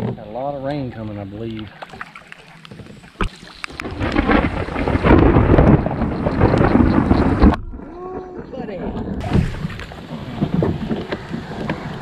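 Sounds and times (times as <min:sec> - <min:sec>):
thunder rumbling: 0:03.7 - 0:12.0.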